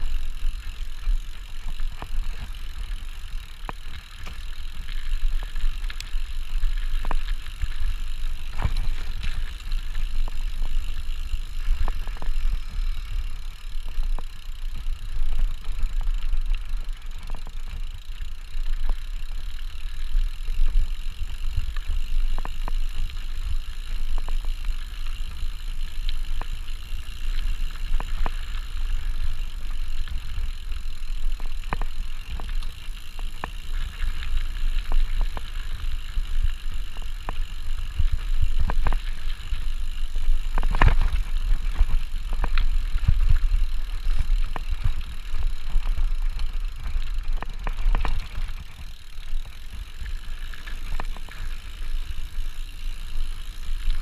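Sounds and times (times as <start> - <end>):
bike rattling and knocking: 0.0 - 54.0
tyres on dirt: 0.0 - 54.0.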